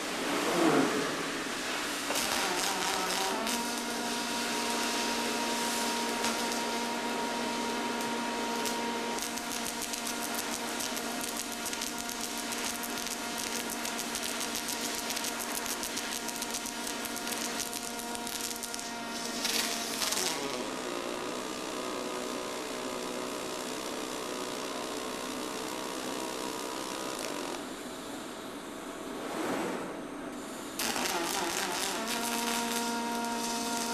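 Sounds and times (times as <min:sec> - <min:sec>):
welding arc crackling and hissing: 0:00.0 - 0:33.9
steady hum: 0:27.6 - 0:33.9.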